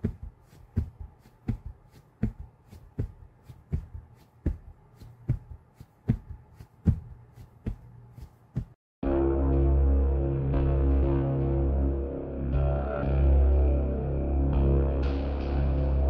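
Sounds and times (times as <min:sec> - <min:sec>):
steady beat of soft thumps: 0:00.0 - 0:08.8.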